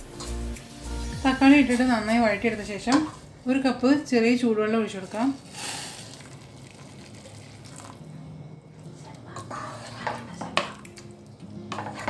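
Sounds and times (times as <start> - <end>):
water pouring into pot: 5.2 - 8.1
wooden spoon scraping pot: 9.3 - 10.8, 11.7 - 12.0.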